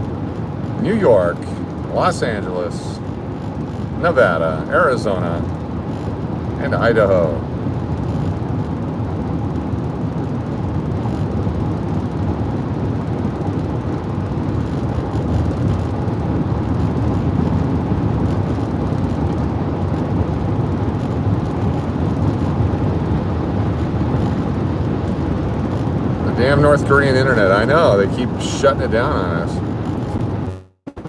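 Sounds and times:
car road noise: 0.0 - 31.0.

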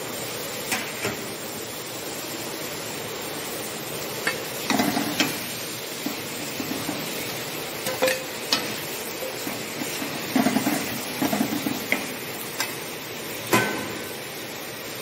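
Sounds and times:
steady hiss: 0.0 - 15.0
steel ladle scraping and clinking: 7.8 - 11.7.

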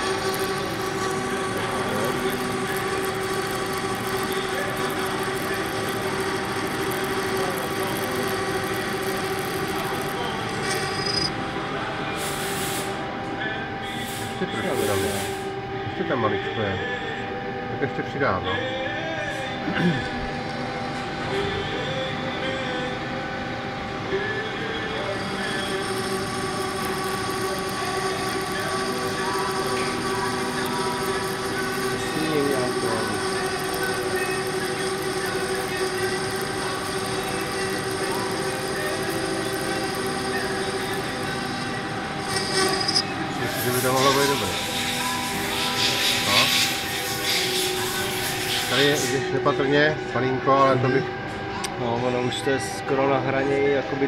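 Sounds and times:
metal lathe cutting: 0.0 - 12.9, 21.2 - 51.0
cutting tool scratchy hiss: 6.8 - 11.3, 12.2 - 13.0, 14.0 - 15.4, 42.2 - 49.1
constant tone: 24.2 - 53.4.

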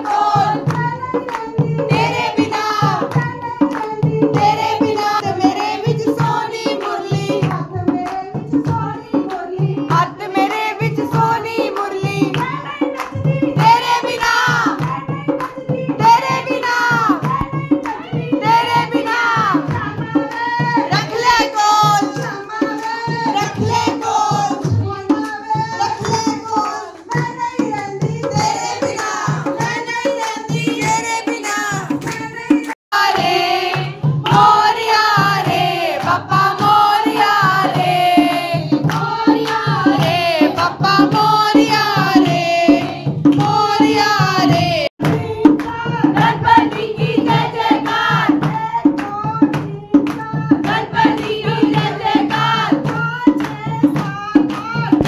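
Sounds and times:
hand clapping: 0.0 - 1.7, 2.6 - 4.5, 10.5 - 15.6, 31.9 - 34.6, 35.4 - 45.8, 47.8 - 55.0
drum beating steady rhythm: 0.0 - 55.0
women singing devotional song: 0.0 - 55.0.

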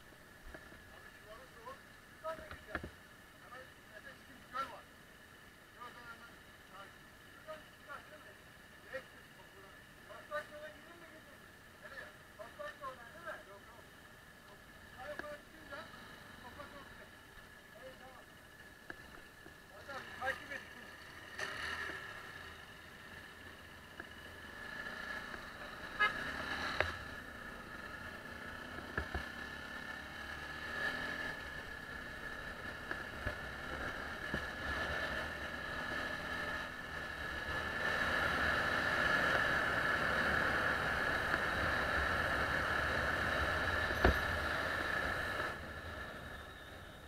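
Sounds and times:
motorcycle engine whining: 14.5 - 47.0
sharp knocks from road bumps: 28.7 - 29.3, 43.8 - 44.4.

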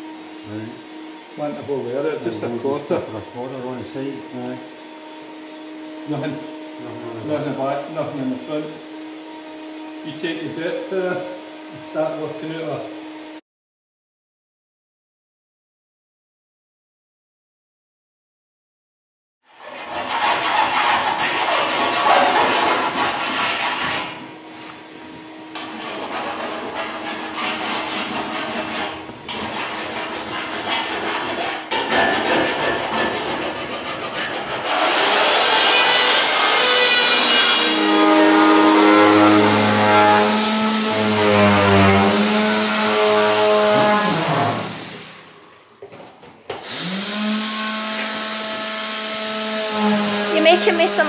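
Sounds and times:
vacuum cleaner running: 0.0 - 13.4, 21.0 - 29.9, 36.7 - 45.6, 46.5 - 51.0
jigsaw cutting metal sheet: 19.5 - 24.2, 25.6 - 45.2, 46.6 - 51.0.

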